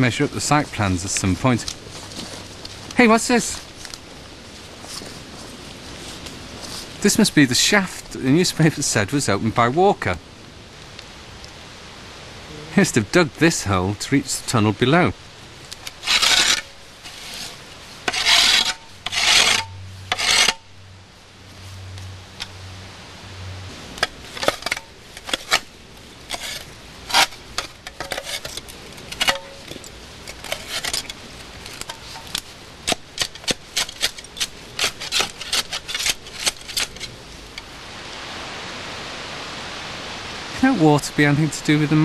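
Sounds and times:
stick scraping through leaves and soil: 0.0s - 7.4s, 15.6s - 20.7s, 23.8s - 37.7s.

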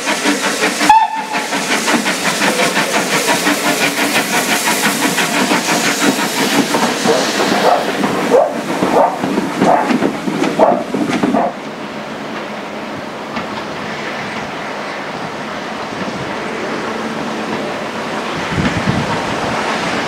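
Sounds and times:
steam locomotive exhaust beats: 0.0s - 20.0s
steam whistle toot: 0.8s - 1.5s.

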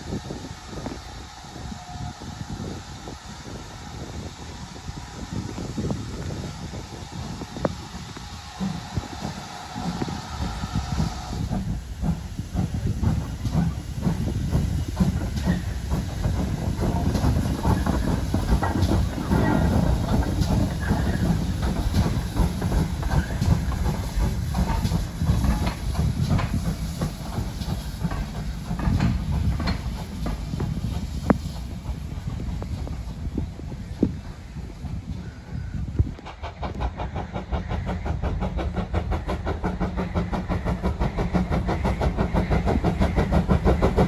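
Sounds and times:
steam hissing: 0.0s - 44.0s
train rumbling: 0.0s - 44.0s
wheels clanking on rail joints: 7.6s - 44.0s.

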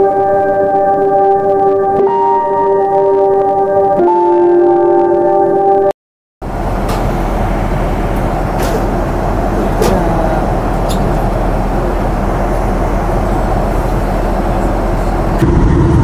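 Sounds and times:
airliner engine and airflow rumble: 6.5s - 16.0s.

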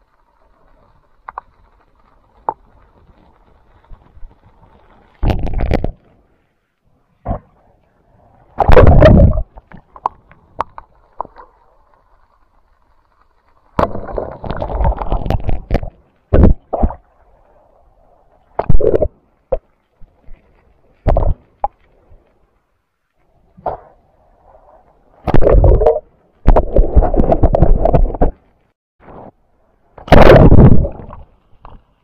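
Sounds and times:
water splashing and gurgling: 2.2s - 6.0s, 8.3s - 13.0s, 13.6s - 22.2s, 25.2s - 28.5s, 30.0s - 31.9s.

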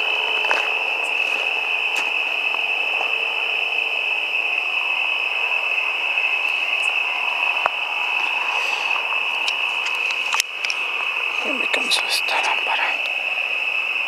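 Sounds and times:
crickets trilling: 0.0s - 14.0s.

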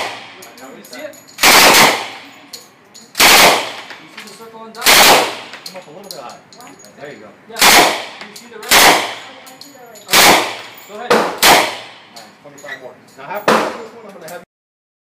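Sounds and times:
automatic gunfire bursts: 0.0s - 0.4s, 1.4s - 2.2s, 3.2s - 3.9s, 4.8s - 5.5s, 7.6s - 9.4s, 10.1s - 11.9s.

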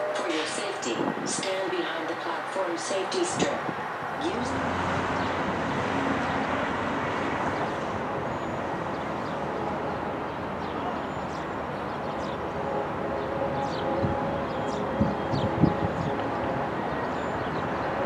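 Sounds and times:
distant freight train rumble: 0.0s - 18.0s
traffic noise: 0.0s - 18.0s.

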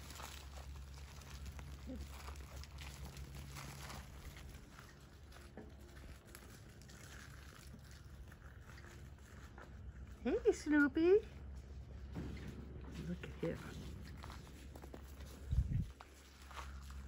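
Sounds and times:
puppies scuffling on grass: 0.0s - 17.0s.

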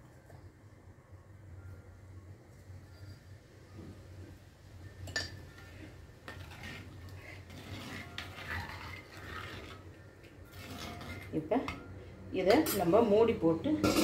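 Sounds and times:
ladle stirring in clay pot: 5.5s - 11.8s.

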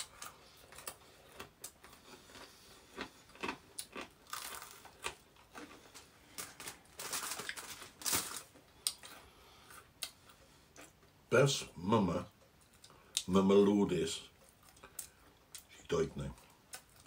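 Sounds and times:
crunchy chewing: 0.0s - 11.0s
foil tray crinkling: 6.3s - 8.6s.

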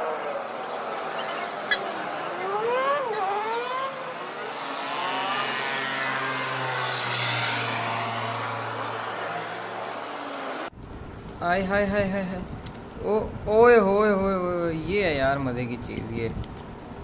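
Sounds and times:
vehicle engine revving past: 0.0s - 10.7s.

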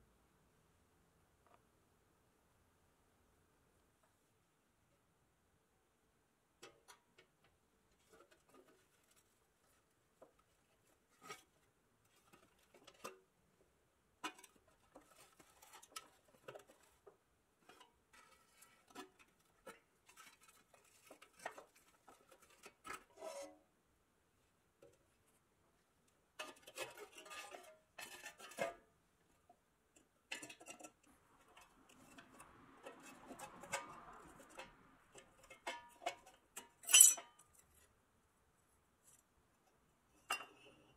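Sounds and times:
metal scraping: 30.3s - 37.9s.

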